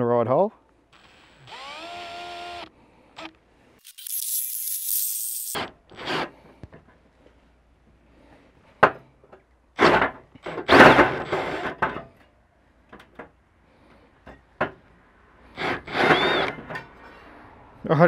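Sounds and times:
drill cutting sheet metal: 1.0s - 6.3s, 15.6s - 16.6s
saw teeth clicking on metal: 3.2s - 5.6s.

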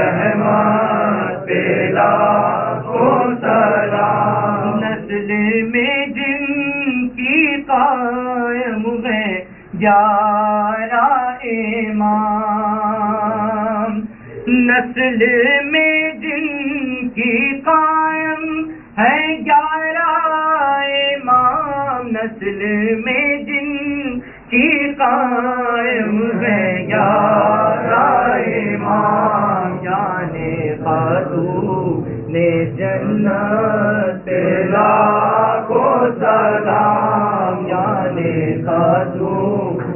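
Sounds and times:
men's voices singing in chorus: 0.0s - 5.7s, 24.6s - 39.9s
man singing unaccompanied: 0.0s - 39.9s.

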